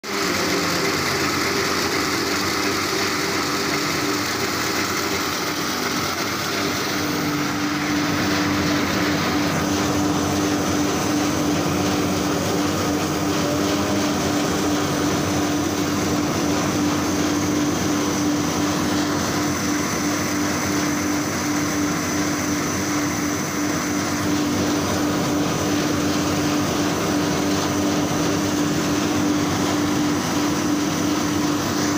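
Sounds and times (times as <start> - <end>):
snack machinery mechanical drone: 0.0 - 31.9
steady hum: 0.1 - 31.9.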